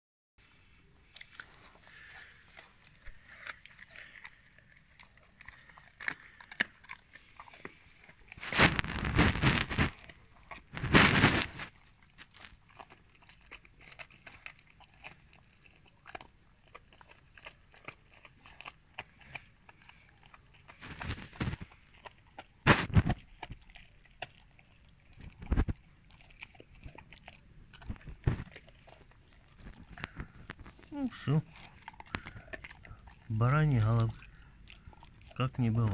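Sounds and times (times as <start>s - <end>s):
dog crunching on bone: 0.5s - 35.9s
wet clicks of teeth and meat: 1.1s - 35.9s
small cracks and clicks: 16.1s - 24.5s, 27.8s - 35.9s.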